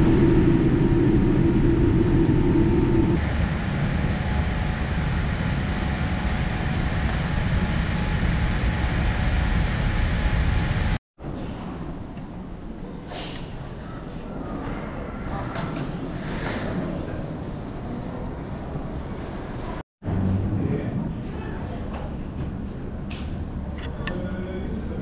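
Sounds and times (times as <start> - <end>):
airplane cabin hum: 0.0 - 11.0
jet engines rumbling: 0.0 - 11.0.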